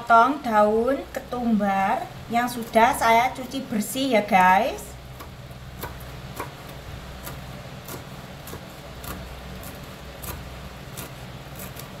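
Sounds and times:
steady low hum: 0:00.0 - 0:12.0
knife chopping on cutting board: 0:05.2 - 0:12.0.

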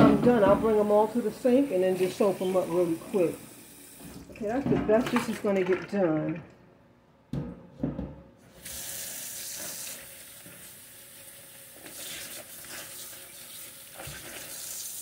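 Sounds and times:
tap water running into sink: 0:01.8 - 0:06.5, 0:08.6 - 0:15.0.

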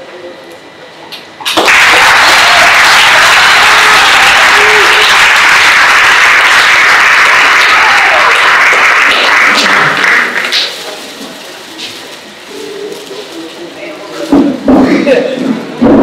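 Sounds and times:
audience applauding: 0:01.5 - 0:10.8.

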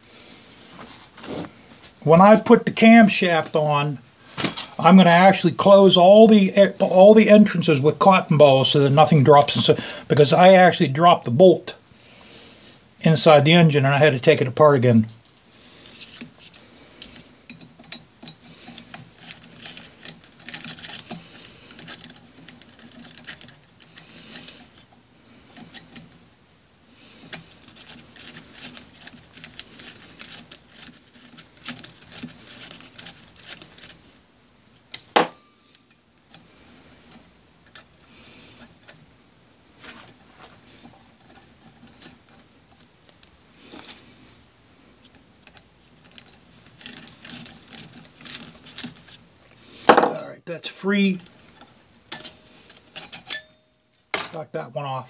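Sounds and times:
sharp metallic clink: 0:53.1 - 0:54.4.

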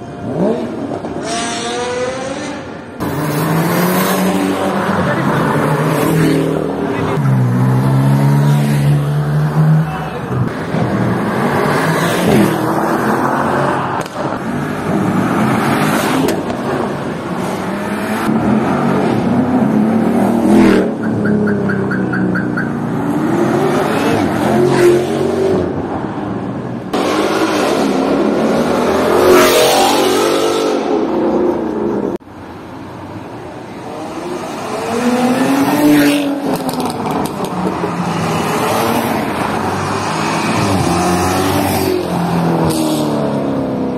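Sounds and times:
sports cars accelerating: 0:00.1 - 0:32.2, 0:33.7 - 0:43.9
evenly spaced beeps: 0:21.0 - 0:22.8.

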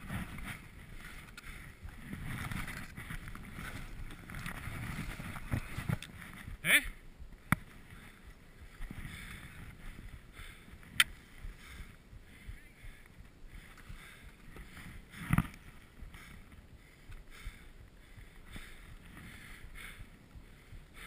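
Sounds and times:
sharp clicks: 0:10.9 - 0:11.2.

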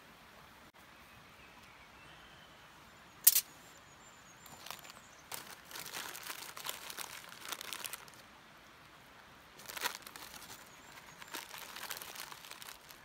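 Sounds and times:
plastic packet crinkling: 0:04.5 - 0:08.2, 0:09.6 - 0:13.0.

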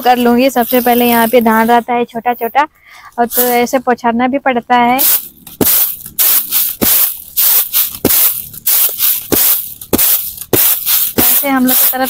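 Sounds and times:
rice rattling in winnowing tray: 0:00.1 - 0:01.7, 0:05.0 - 0:12.0.

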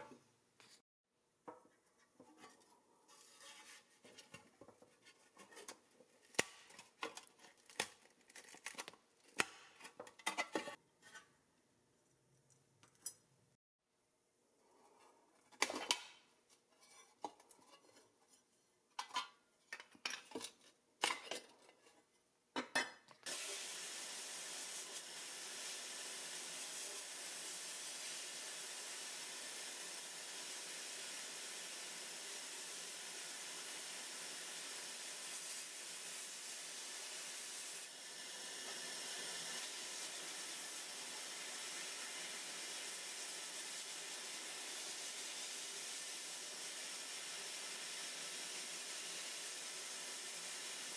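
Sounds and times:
sandblast nozzle hissing: 0:23.3 - 0:43.7.

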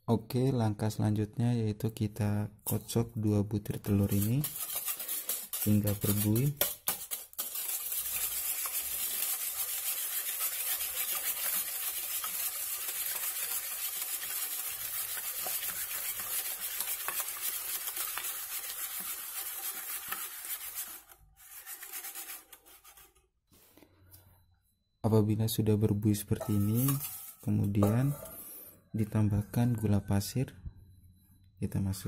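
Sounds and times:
whisk scraping metal bowl: 0:03.8 - 0:23.1, 0:26.4 - 0:28.5.

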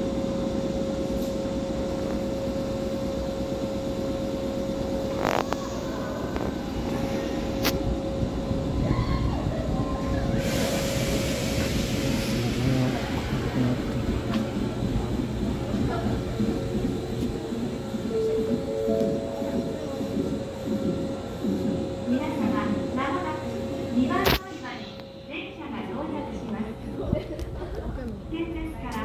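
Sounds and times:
electric train whine and rumble: 0:00.0 - 0:29.0.

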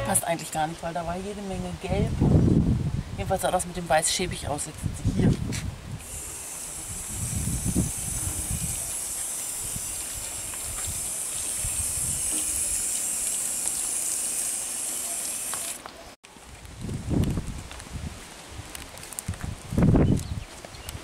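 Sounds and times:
hose nozzle spraying water: 0:06.0 - 0:15.9.

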